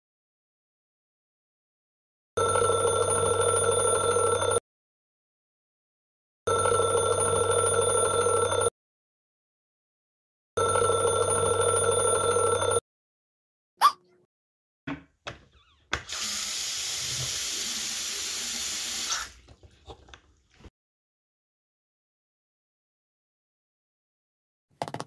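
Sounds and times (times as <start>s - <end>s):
water running: 16.0s - 19.6s.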